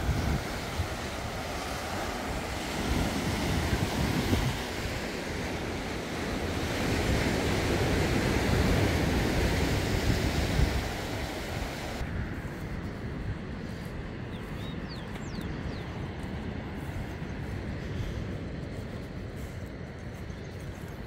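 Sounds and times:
surf on a rocky shore: 0.0 - 12.2
wind buffeting microphone: 0.0 - 21.0.

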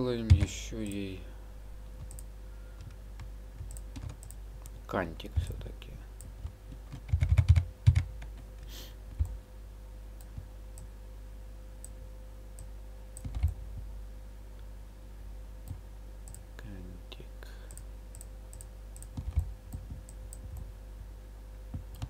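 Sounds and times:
faint steady hum: 0.0 - 22.0
keyboard and mouse clicking: 2.0 - 4.8, 6.2 - 9.4, 12.6 - 13.6, 17.7 - 20.7, 21.8 - 22.0.

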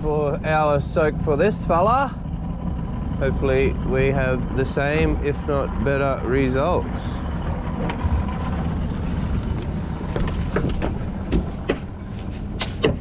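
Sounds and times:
outboard motor idling: 0.0 - 13.0
clicks and knocks: 7.8 - 13.0.

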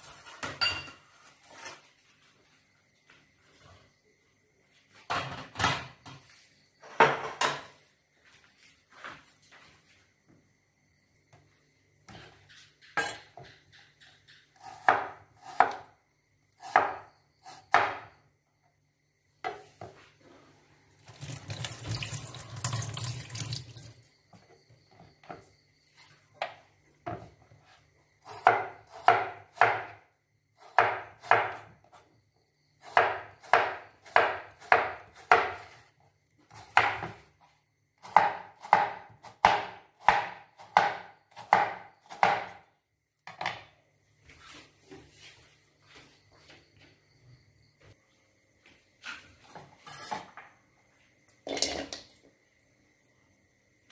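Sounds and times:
water running from a tap: 21.0 - 24.1
cleaver chopping on plastic board: 38.1 - 42.6.

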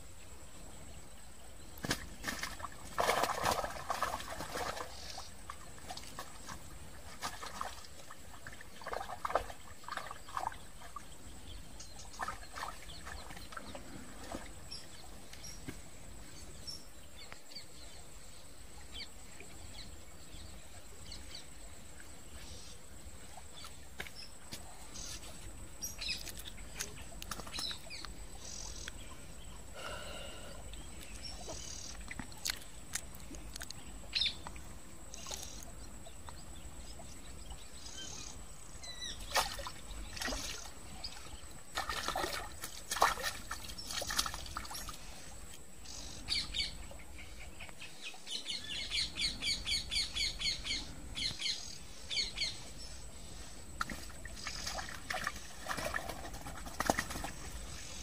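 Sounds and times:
low outdoor background noise: 0.0 - 58.0
fish splashing at water surface: 1.8 - 5.2, 39.3 - 40.7, 41.7 - 45.0, 53.8 - 57.6
birds chirping: 7.3 - 18.1, 23.4 - 42.7.

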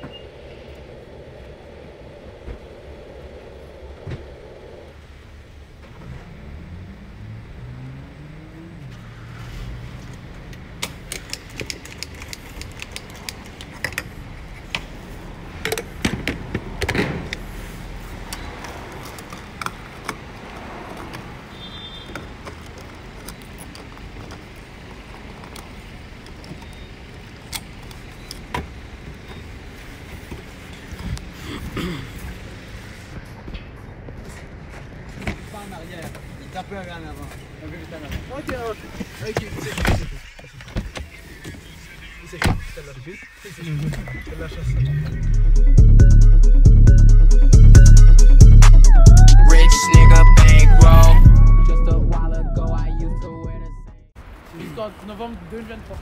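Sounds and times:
car engine rumbling: 0.0 - 54.5
sharp clicks and knocks: 10.5 - 14.9.

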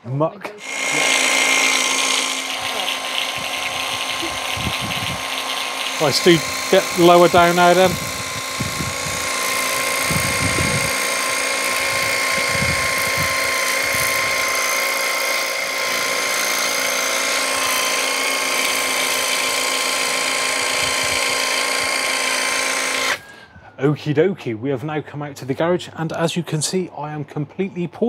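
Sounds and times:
water spraying: 0.6 - 20.4
electric pump whining: 0.6 - 23.5.

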